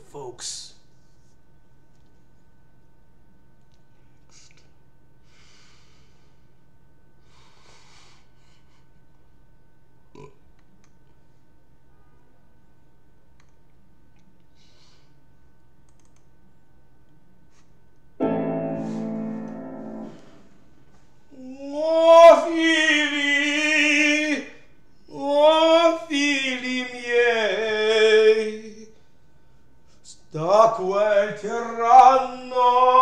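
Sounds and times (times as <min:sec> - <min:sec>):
person breathing: 0:05.2 - 0:06.6, 0:07.2 - 0:09.0, 0:14.5 - 0:15.2, 0:18.7 - 0:20.7
piano chord: 0:18.2 - 0:20.9
man singing operatic phrases: 0:21.5 - 0:28.9, 0:30.2 - 0:33.0.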